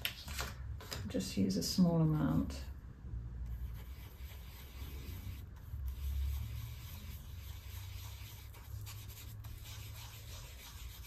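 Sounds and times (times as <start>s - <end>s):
paintbrush rubbing on palette: 3.5s - 11.0s.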